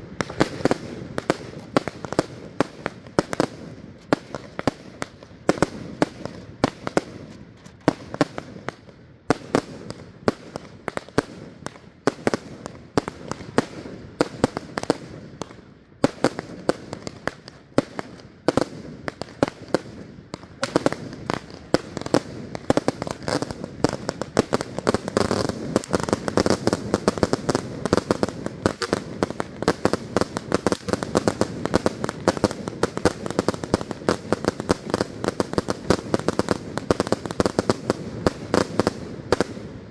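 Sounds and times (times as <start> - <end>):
fireworks bangs and crackling: 0.0 - 39.9.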